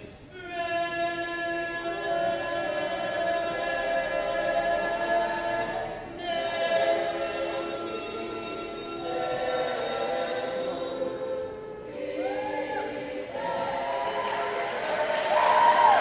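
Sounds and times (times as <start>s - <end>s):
choir singing a cappella: 0.0s - 16.0s.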